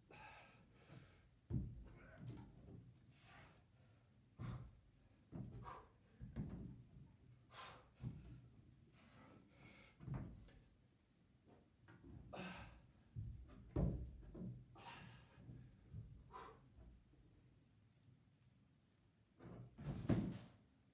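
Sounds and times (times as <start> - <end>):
person breathing hard: 0.1 - 1.2, 16.2 - 16.7.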